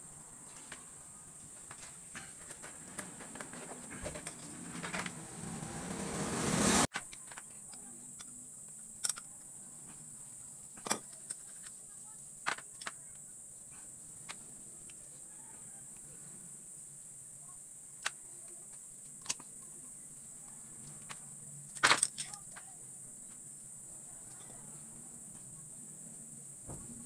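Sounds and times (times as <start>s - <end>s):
steady high-pitched hiss: 0.0s - 27.0s
small metal parts clinking: 21.7s - 22.6s.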